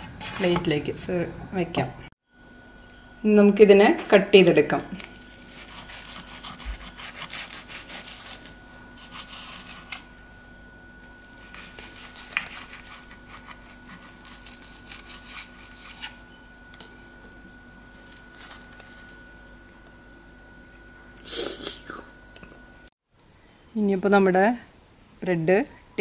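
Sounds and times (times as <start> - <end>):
knife sawing through crusty bread: 5.4 - 10.0, 11.2 - 16.2.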